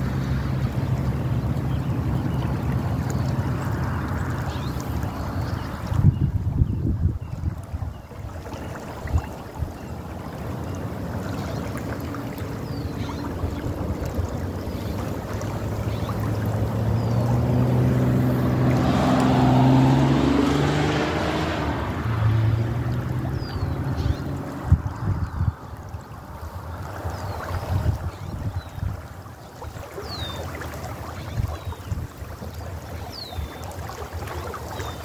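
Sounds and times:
vehicle engine passing: 12.0 - 26.0.

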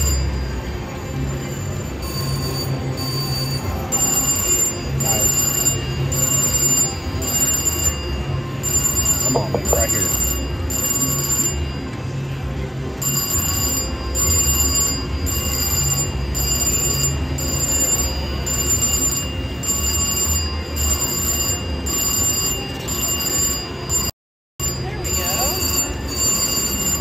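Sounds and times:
bell-like slot machine ringing: 0.0 - 27.0
electronic slot machine music: 0.0 - 27.0.

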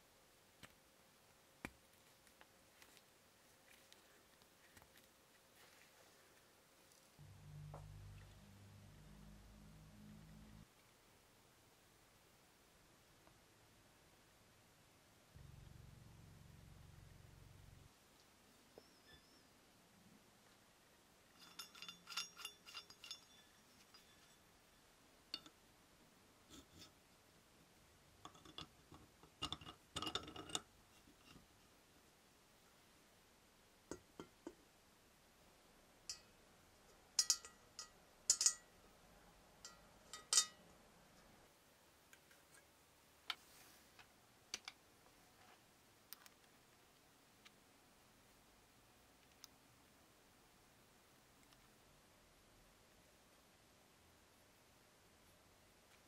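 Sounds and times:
metal parts clinking and clicking: 21.4 - 24.4.

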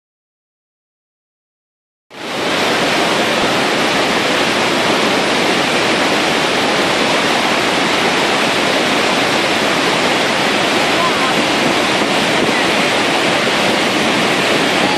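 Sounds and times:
waterfall rushing: 2.1 - 14.9.

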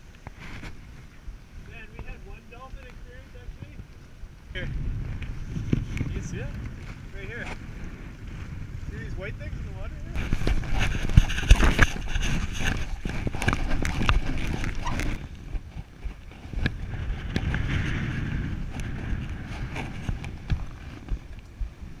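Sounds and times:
wind buffeting microphone: 0.0 - 22.0
water splashing along hull: 10.1 - 22.0.

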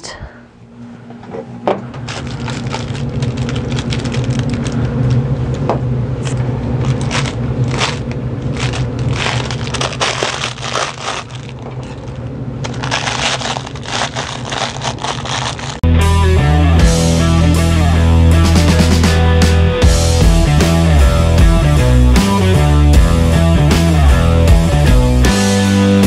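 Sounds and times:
low steady hum: 0.0 - 15.8
crinkle fabric crackling: 2.0 - 4.9, 6.8 - 15.8.

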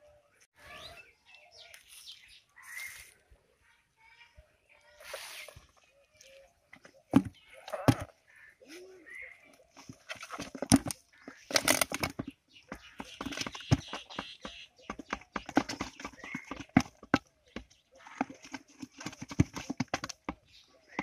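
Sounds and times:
eels knocking in plastic bucket: 6.7 - 8.2, 9.7 - 21.0.

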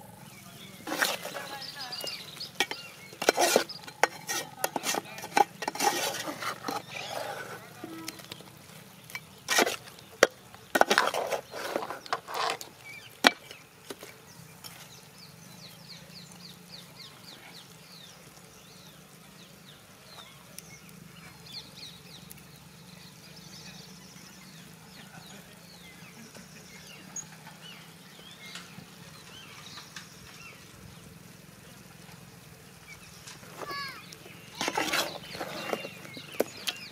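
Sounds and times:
spatula scraping a frying pan: 0.8 - 14.9, 33.2 - 36.9.

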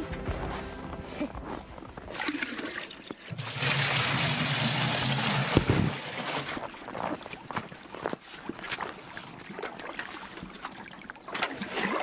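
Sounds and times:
water pouring into plastic canister: 2.1 - 6.6, 9.5 - 12.0.

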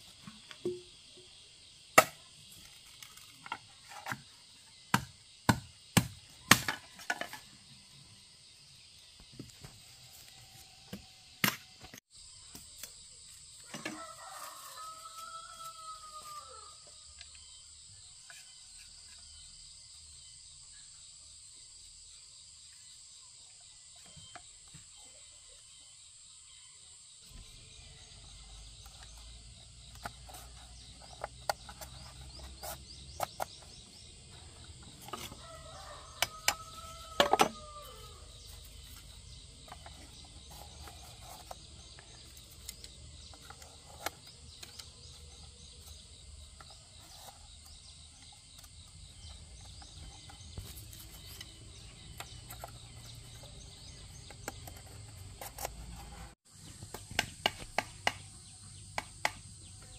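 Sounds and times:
insects chirring: 0.0 - 59.9
knife splitting bamboo: 2.0 - 4.3, 4.9 - 7.5, 28.3 - 58.4.

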